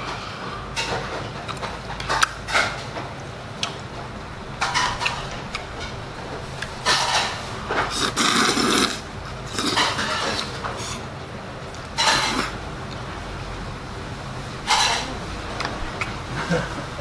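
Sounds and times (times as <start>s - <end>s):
man slurping noodles: 7.9s - 9.8s.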